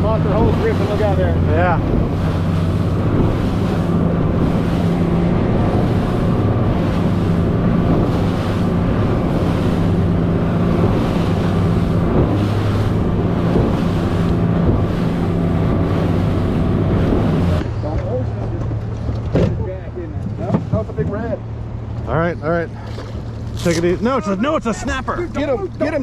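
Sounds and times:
wind on microphone: 0.0 - 17.8
outboard motor running: 0.0 - 26.0
hull and spray hissing through water: 0.2 - 17.6.

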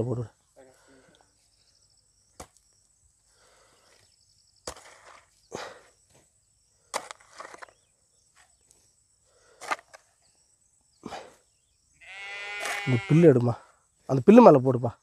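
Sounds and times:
hoe striking and scraping soil: 4.6 - 8.8, 9.5 - 10.2, 12.5 - 12.9.

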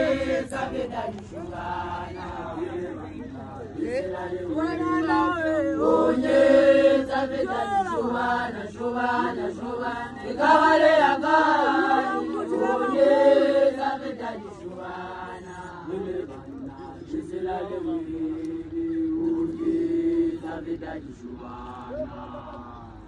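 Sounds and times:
women chanting a song: 0.0 - 23.0.

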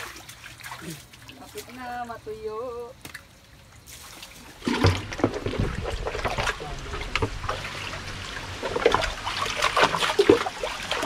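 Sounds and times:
hands splashing in muddy water: 3.9 - 11.0.

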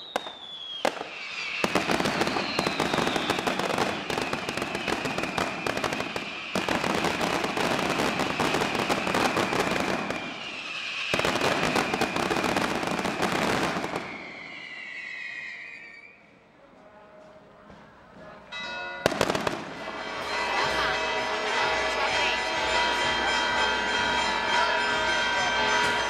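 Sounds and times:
firecracker crackle: 0.0 - 16.2, 19.0 - 21.6.

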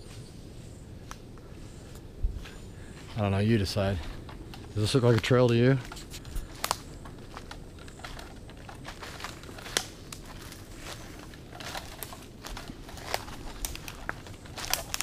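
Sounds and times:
footsteps crunching dry leaves: 0.0 - 15.0.

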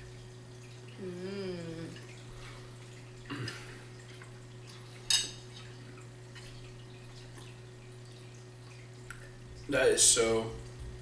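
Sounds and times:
person humming while eating: 1.0 - 2.1.

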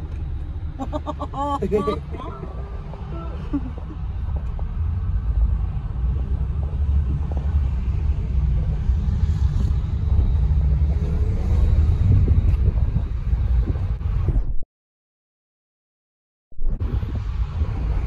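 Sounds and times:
car engine and road noise: 0.0 - 14.6, 16.6 - 18.0.

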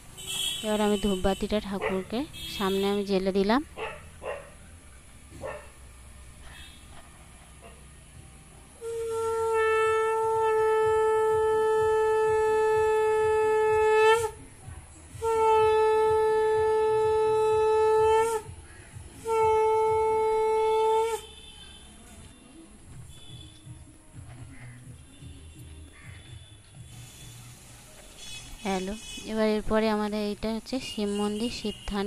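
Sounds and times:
conch shell blasts: 8.8 - 14.4.

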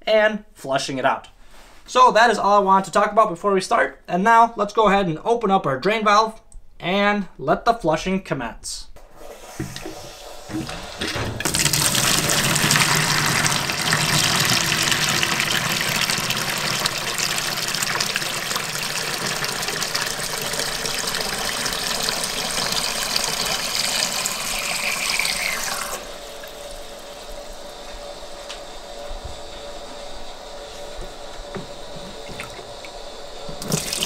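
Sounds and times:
water gushing into plastic bucket: 9.3 - 27.3, 32.0 - 34.0.

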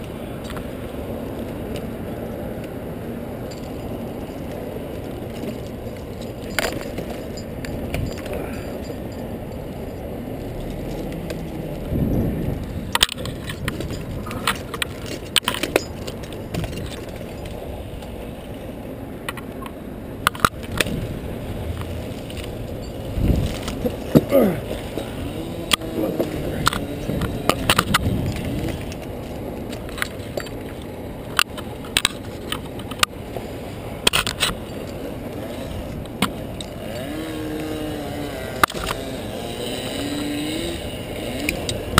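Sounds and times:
metal climbing hardware clinking: 3.4 - 12.0, 12.6 - 18.2, 21.6 - 33.1, 34.0 - 41.9
twigs snapping and scraping: 20.3 - 33.2, 34.0 - 41.9.

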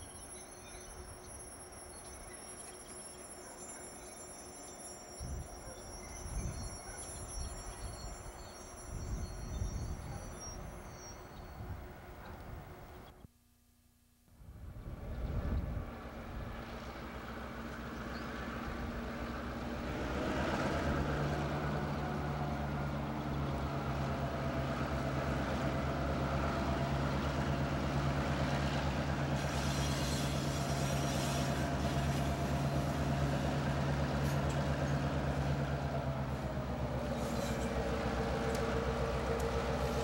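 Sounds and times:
diesel locomotive engines droning: 0.0 - 13.2, 14.6 - 40.0
wheel and rail hiss: 29.0 - 40.0.

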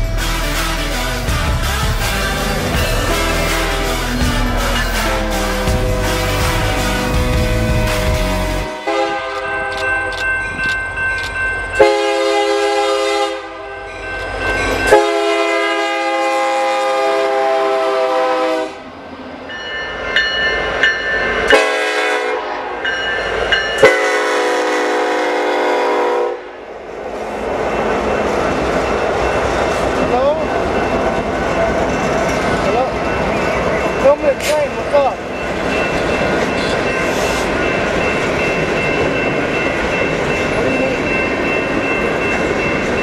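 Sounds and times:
locomotive air horns: 0.0 - 9.4, 11.8 - 13.6, 14.9 - 18.9, 21.5 - 22.6, 23.8 - 26.5
train passing: 0.0 - 43.0.

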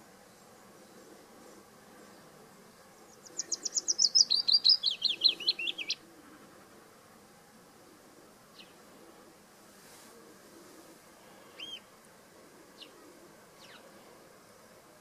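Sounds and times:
warbler singing: 2.9 - 6.0, 11.5 - 11.9, 13.6 - 13.9.

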